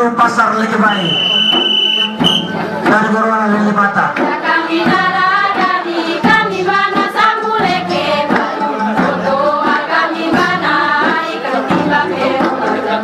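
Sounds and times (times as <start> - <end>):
group chanting a song: 4.1 - 13.0.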